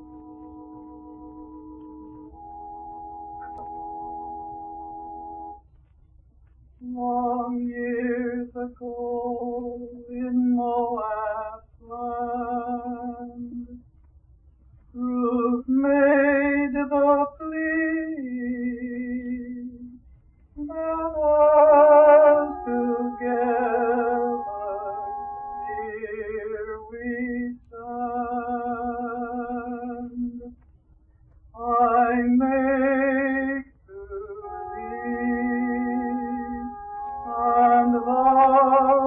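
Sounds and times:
held accompaniment tones: 0.0s - 5.9s, 20.6s - 27.2s, 31.7s - 39.0s
man singing with vibrato: 20.6s - 30.5s, 31.6s - 39.0s.

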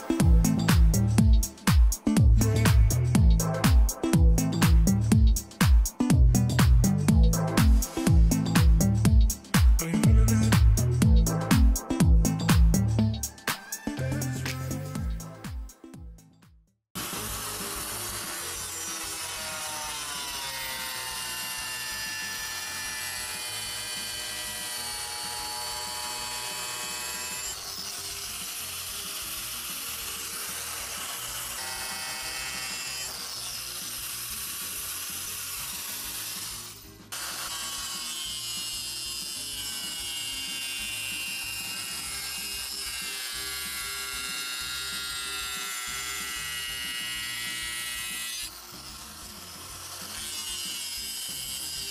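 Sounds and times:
angle grinder grinding tile: 17.0s - 51.9s.

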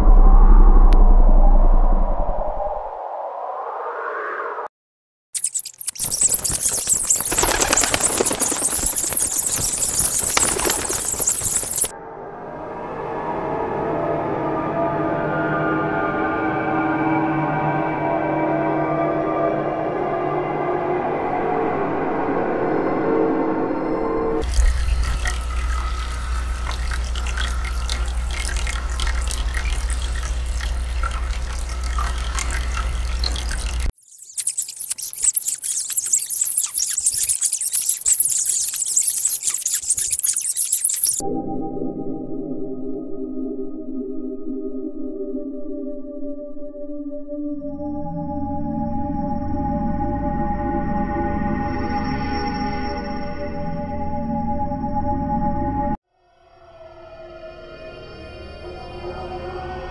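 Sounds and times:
deep low rumble: 0.0s - 3.1s
bat wings fluttering: 5.4s - 11.9s, 24.4s - 41.2s
crackles and clicks: 5.4s - 11.9s, 24.4s - 41.2s.

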